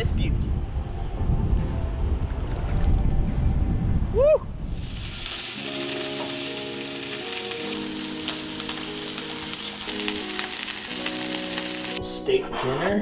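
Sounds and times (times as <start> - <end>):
soft background music: 0.0 - 4.1, 5.0 - 13.0
steaks sizzling in a frying pan: 4.8 - 12.0.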